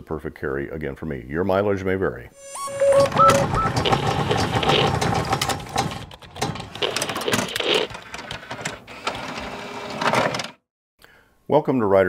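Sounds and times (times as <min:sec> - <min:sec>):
quick mechanical clicks and clatter: 0:03.2 - 0:10.6.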